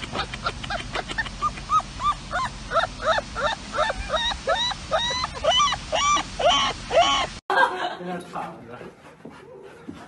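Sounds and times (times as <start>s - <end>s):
puppy yipping and whimpering: 0.1s - 7.3s.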